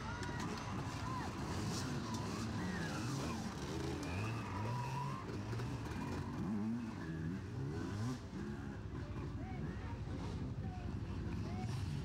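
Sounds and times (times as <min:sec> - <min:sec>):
dirt bikes revving: 0:00.4 - 0:09.0.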